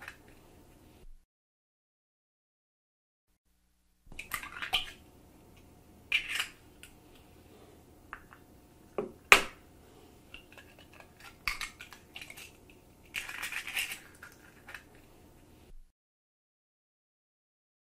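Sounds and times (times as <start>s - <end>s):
eggshells cracking and crunching: 10.4s - 15.0s.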